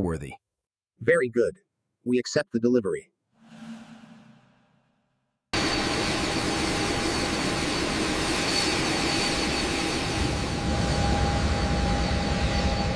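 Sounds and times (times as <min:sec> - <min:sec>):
jet engines running: 0:05.6 - 0:12.9.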